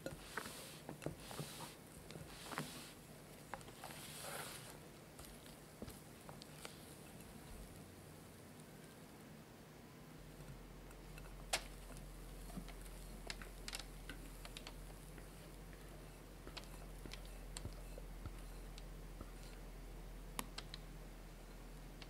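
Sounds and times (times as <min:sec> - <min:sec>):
low steady hum: 0:00.0 - 0:22.0
batter ticks and soft clicks: 0:10.4 - 0:19.7, 0:20.3 - 0:20.9.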